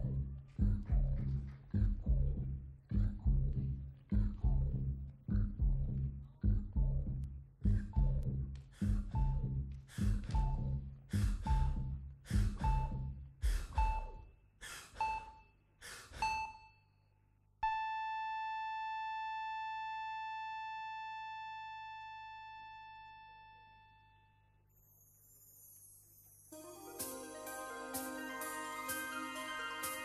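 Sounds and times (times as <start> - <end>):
bell-like chime ringing: 24.7 - 30.0
drum hits with chiming notes: 26.6 - 30.0.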